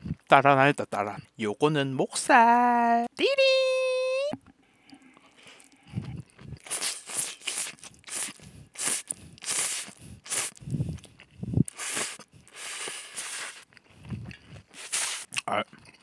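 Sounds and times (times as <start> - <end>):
noodles being slurped: 5.4 - 15.5.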